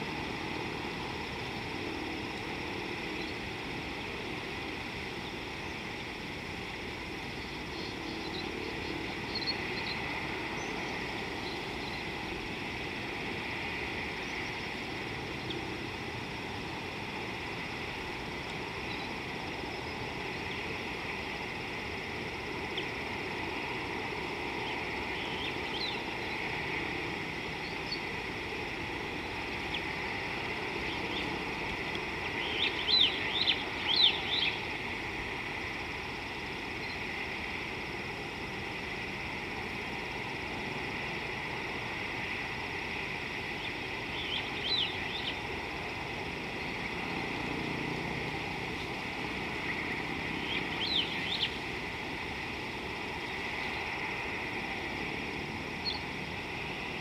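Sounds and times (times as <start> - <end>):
outdoor hum and hiss: 0.0 - 57.0
faint bird chirps: 7.4 - 12.1, 18.8 - 19.2, 32.2 - 34.6, 43.6 - 45.4, 50.4 - 51.6, 55.8 - 56.1.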